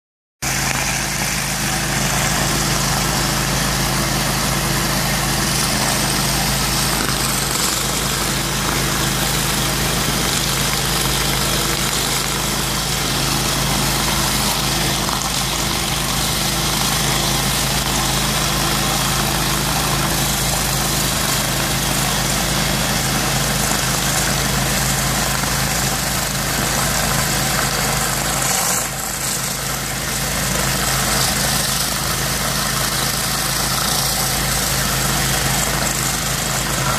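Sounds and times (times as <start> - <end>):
vacuum drawing water: 0.4 - 36.9
engine-driven drone: 0.5 - 15.9, 25.4 - 36.9.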